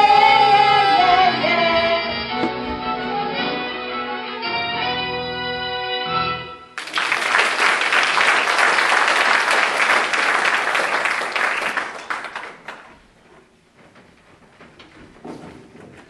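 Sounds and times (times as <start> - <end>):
audience applauding: 6.8 - 13.2.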